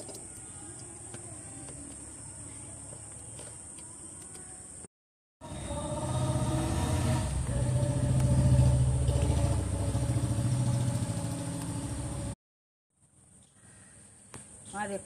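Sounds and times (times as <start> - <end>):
vehicle engine running: 5.4 - 12.4.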